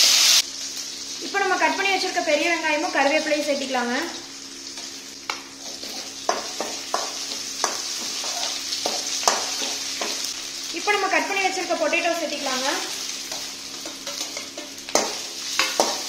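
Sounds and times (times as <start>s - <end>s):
onions sizzling in hot oil: 0.0s - 16.0s
metal spoon scraping a pan: 5.6s - 10.4s, 13.2s - 16.0s.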